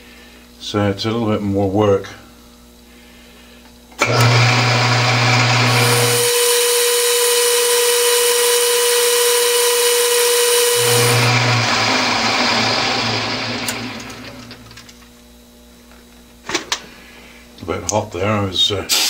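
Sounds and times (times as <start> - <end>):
drill boring into steel: 4.0 - 14.8
metal lathe running: 4.0 - 14.9.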